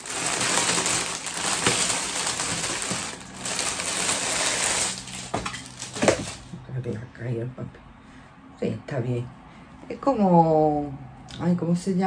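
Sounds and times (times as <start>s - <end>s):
packaging crackling and rustling: 0.0s - 6.5s.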